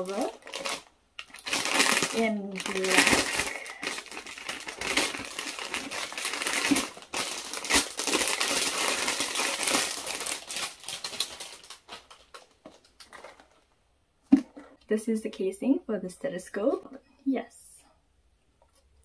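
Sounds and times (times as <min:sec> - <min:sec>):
plastic bag crinkling: 0:00.0 - 0:13.7.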